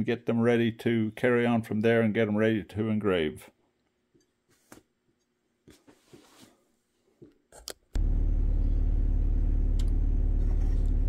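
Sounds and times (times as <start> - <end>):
loud steady machine hum: 8.0 - 11.0.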